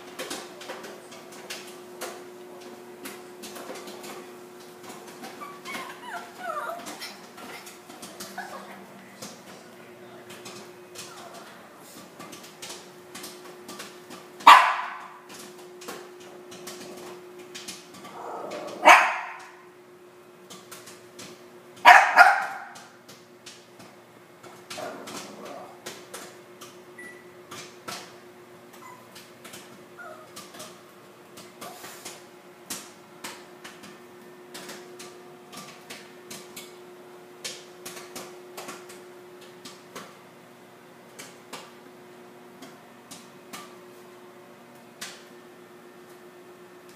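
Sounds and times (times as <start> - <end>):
small dog barking: 14.5 - 15.1, 18.2 - 19.5, 21.8 - 22.8.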